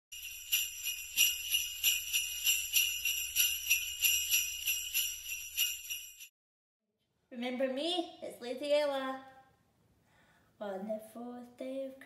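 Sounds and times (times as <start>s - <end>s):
sleigh bells jingling: 0.1s - 6.3s.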